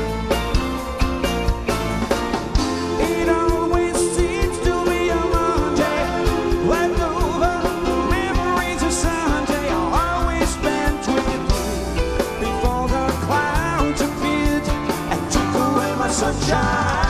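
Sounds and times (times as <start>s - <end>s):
bass guitar: 0.0s - 17.0s
drums: 0.0s - 17.0s
man singing lead vocal: 2.6s - 17.0s.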